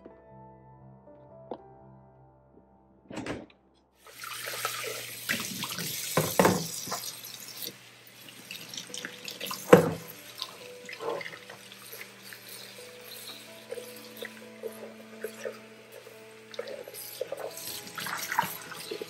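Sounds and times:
kitchen tap running: 4.0 - 19.0
knocks and clunks in sink: 6.1 - 7.1, 9.6 - 10.1.

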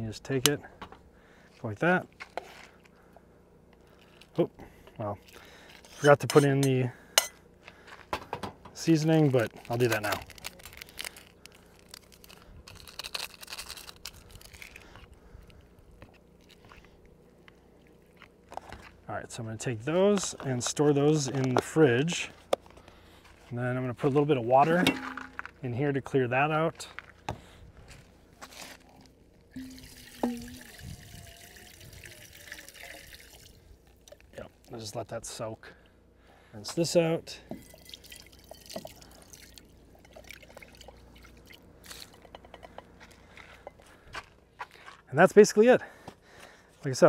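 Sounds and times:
seasoning packet crinkling: 9.2 - 15.0
water trickling into cookware: 29.6 - 34.0, 37.5 - 41.6.

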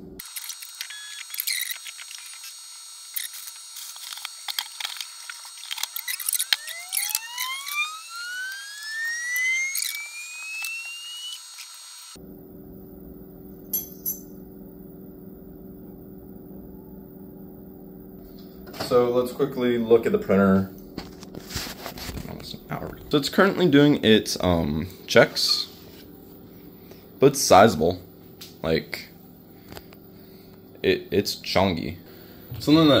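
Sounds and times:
rising machine whine: 0.0 - 13.5, 32.5 - 33.0
low steady hum: 12.1 - 33.0
packaging rustling: 21.0 - 22.6.

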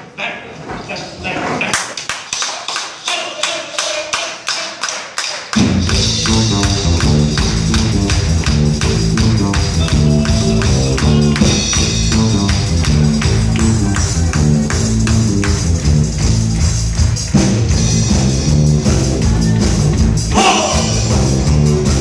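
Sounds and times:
quick percussive taps: 2.2 - 17.4
live band with guitars: 5.6 - 22.0.

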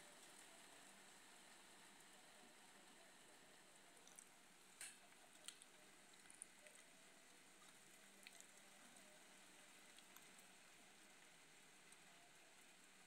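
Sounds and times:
light rain hiss: 0.0 - 13.0
drip ticks: 4.0 - 6.9.

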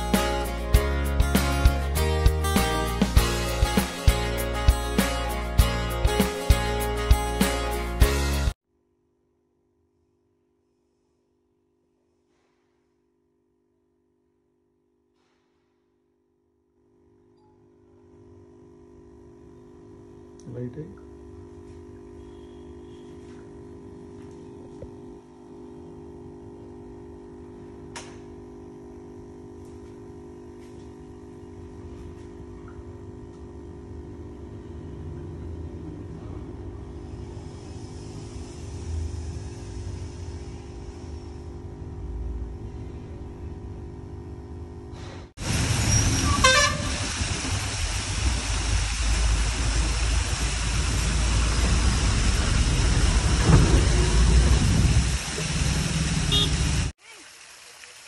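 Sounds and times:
low tone hum: 20.8 - 45.2
water fountain jets splashing: 45.4 - 58.0.

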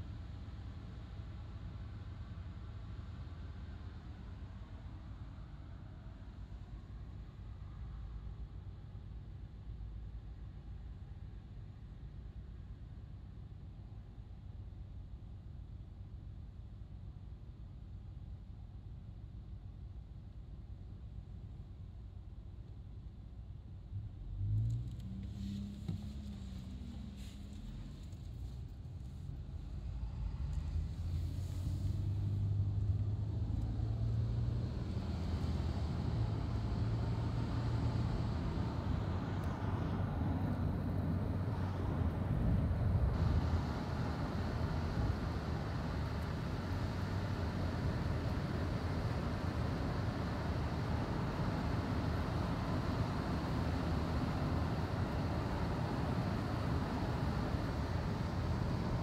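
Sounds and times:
car engine and tyre noise: 23.9 - 59.0.

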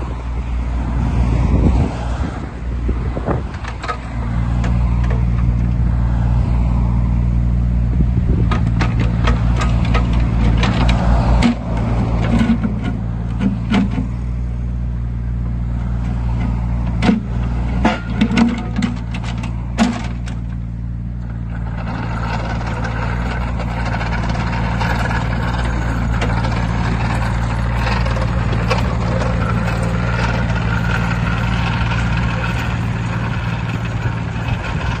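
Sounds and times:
rushing track travel noise: 0.0 - 7.1, 7.9 - 14.3, 15.6 - 35.0
diesel engine running: 0.0 - 35.0
metal clanks: 8.4 - 14.1, 16.4 - 35.0.

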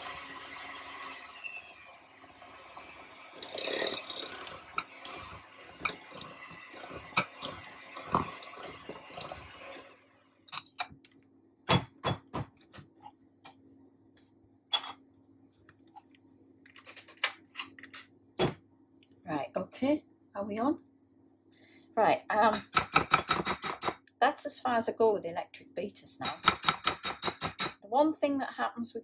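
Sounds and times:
electric hand mixer running: 0.0 - 10.0
clinks and knocks: 3.4 - 9.4.

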